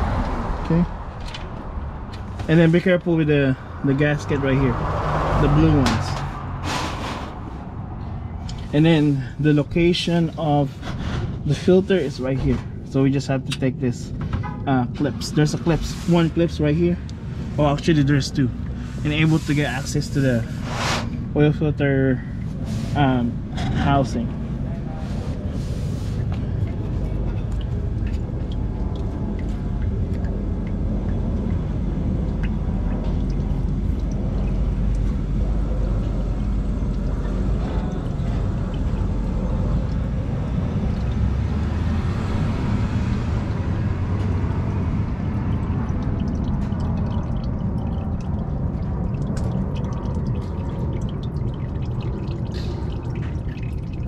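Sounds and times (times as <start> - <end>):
oil draining into a pan: 26.2 - 54.0.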